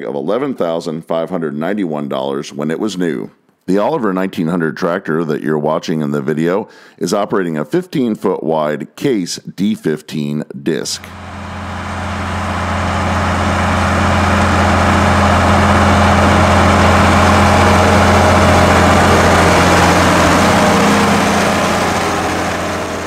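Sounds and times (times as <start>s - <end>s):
tractor engine droning: 11.0s - 23.0s.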